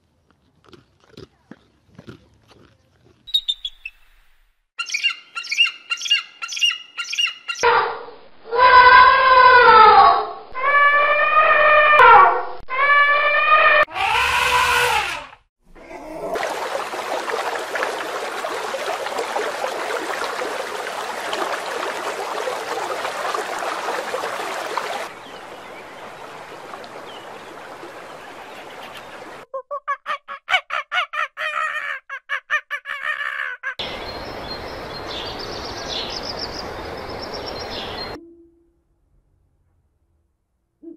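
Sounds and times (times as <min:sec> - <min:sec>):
high bird chirps: 0:03.3 - 0:07.6.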